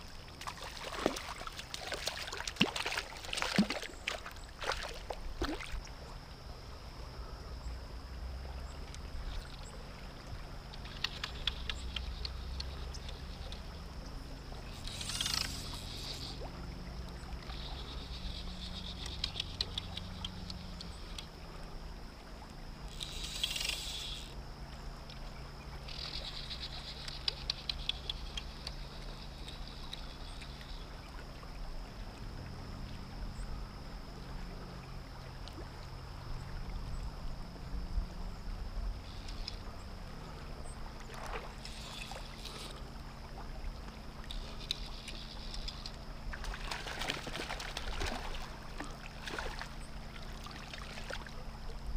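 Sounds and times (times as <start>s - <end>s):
fishing reel drag buzzing: 14.5s - 16.5s, 17.4s - 21.3s, 22.8s - 24.4s, 25.8s - 30.9s, 39.0s - 43.0s, 43.8s - 46.0s.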